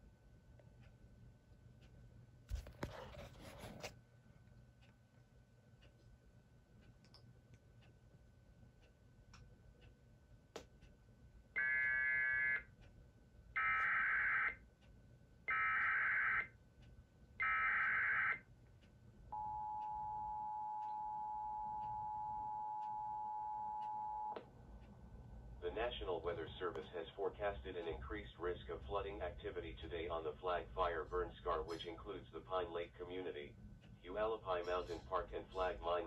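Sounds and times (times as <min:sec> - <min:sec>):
faint steady high tone: 0:19.3 - 0:24.4.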